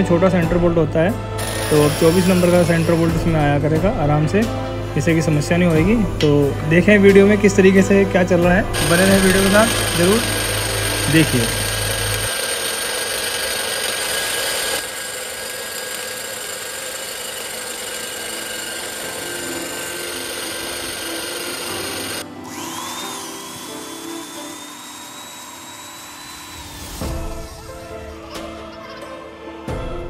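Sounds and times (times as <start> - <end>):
electric drill cutting metal: 1.4 - 3.5, 8.7 - 28.0
high thin drill whine: 1.4 - 3.5, 8.7 - 27.9.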